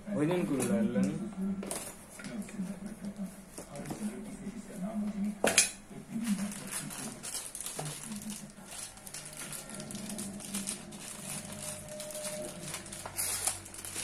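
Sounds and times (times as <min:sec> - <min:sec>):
plastic wrapping crinkling: 0:06.1 - 0:14.0.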